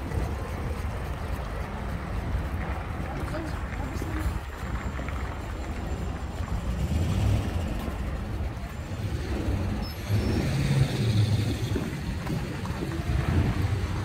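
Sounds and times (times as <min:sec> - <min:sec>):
road traffic rumble: 0:00.0 - 0:14.0.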